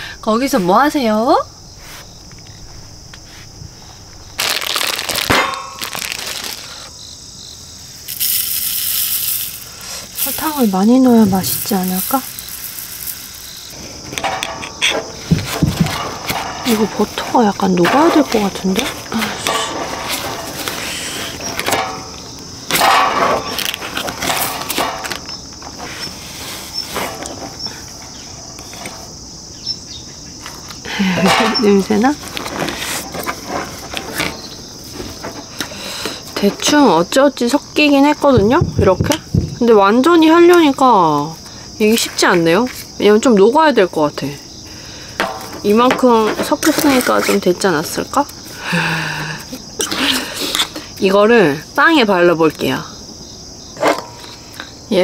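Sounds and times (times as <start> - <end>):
high insect trill: 0.0 - 55.0
thump: 14.2 - 16.6, 38.3 - 39.6.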